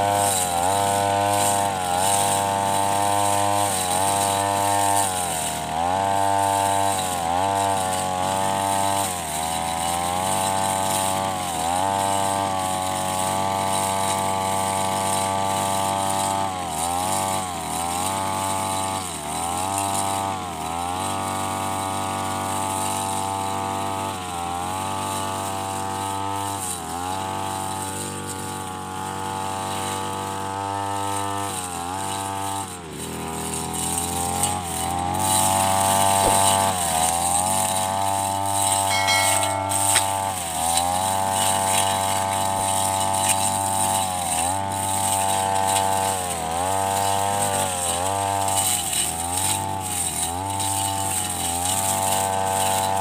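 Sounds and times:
brush cutter engine running: 0:00.0 - 0:53.0.

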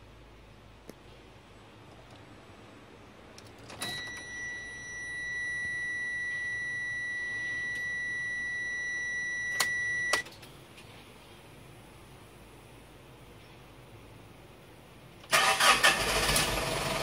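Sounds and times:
ignition key click: 0:09.5 - 0:10.4.

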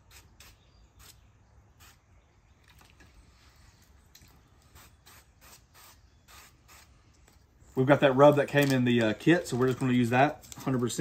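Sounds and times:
aerosol spray hissing: 0:04.7 - 0:07.0.

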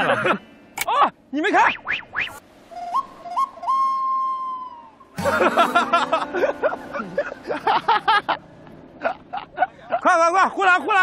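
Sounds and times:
whistle notes: 0:02.7 - 0:05.2.

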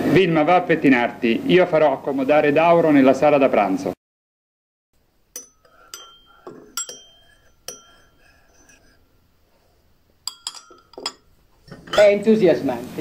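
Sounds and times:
cutlery and glassware clinking: 0:05.3 - 0:09.4, 0:10.2 - 0:12.3.

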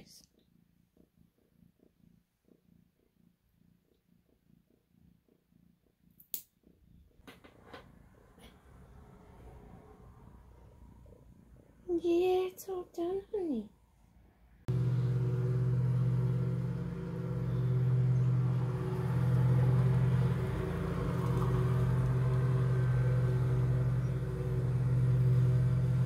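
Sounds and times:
lawn mower engine running: 0:14.7 - 0:26.0.

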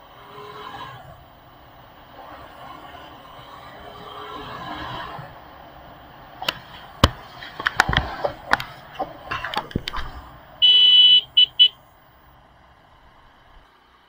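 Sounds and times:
sharp clicks and knocks: 0:06.4 - 0:10.2
vehicle horn honking: 0:10.6 - 0:11.8.

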